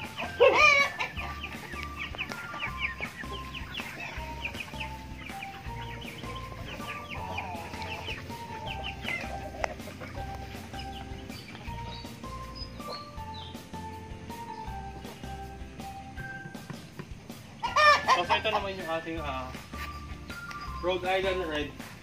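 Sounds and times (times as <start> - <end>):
chicken squawk: 0.0 - 13.2, 17.6 - 19.1
chicks peeping: 0.0 - 22.0.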